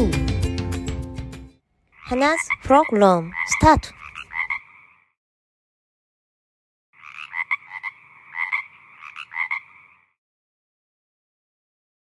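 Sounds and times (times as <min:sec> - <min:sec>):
frog croaking: 0:01.8 - 0:05.2, 0:06.9 - 0:10.2.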